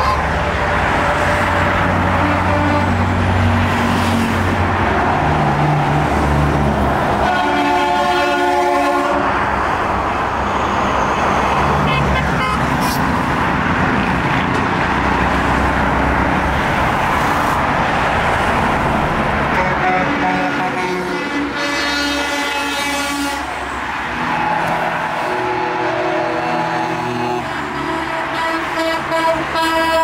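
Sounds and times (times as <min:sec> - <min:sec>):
vehicle horn: 0:00.0 - 0:00.4, 0:02.1 - 0:03.1, 0:07.2 - 0:09.4, 0:11.8 - 0:12.9, 0:19.5 - 0:23.6, 0:24.2 - 0:30.0
highway traffic passing: 0:00.0 - 0:30.0.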